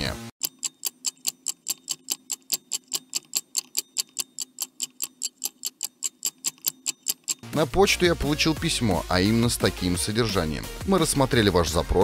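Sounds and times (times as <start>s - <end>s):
clock ticking: 0.4s - 7.6s.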